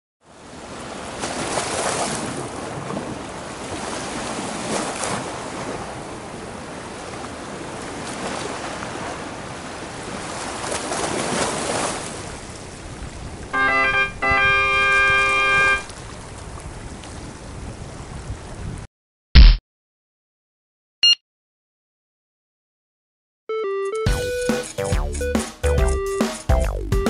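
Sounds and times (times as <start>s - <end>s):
waves washing against concrete wall: 0.4s - 13.5s.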